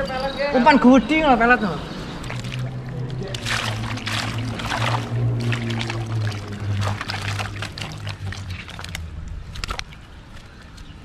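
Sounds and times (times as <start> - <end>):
loud steady low hum: 1.7 - 9.9
water splashing and pouring: 2.1 - 10.5.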